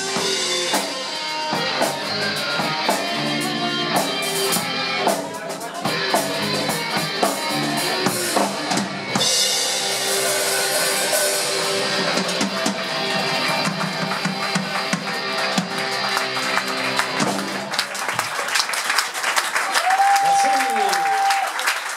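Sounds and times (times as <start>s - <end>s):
live rock band playing: 0.0s - 18.4s
cymbals: 7.3s - 13.7s
people clapping: 11.8s - 21.9s.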